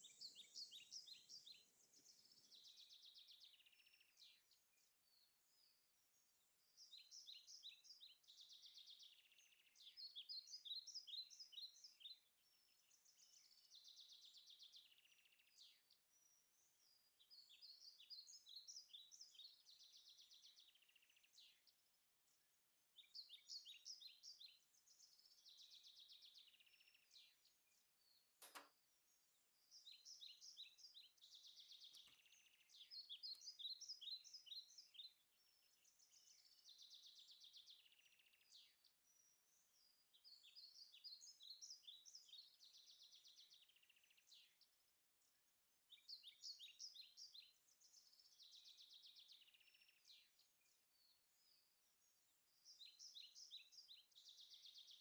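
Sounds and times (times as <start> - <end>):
songbirds chirping: 0.0 - 55.0
soft clicks: 28.4 - 28.8.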